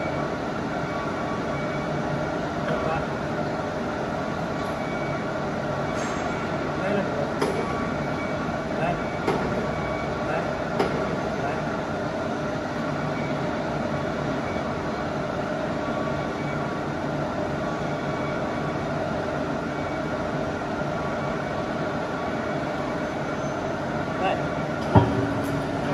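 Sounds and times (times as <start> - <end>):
hydraulic press humming: 24.6 - 25.9.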